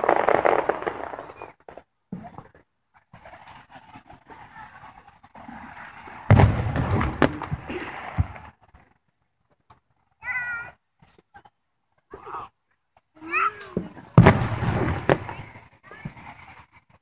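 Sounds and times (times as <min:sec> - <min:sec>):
fireworks shell boom: 0:06.3 - 0:08.4
sharp bangs: 0:06.3 - 0:08.4, 0:13.8 - 0:15.6.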